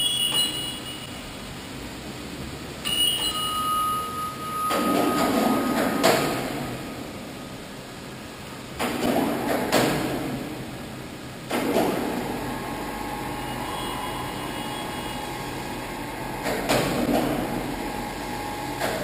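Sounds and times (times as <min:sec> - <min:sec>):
ringing metallic tone: 0:00.0 - 0:01.2, 0:02.8 - 0:07.1.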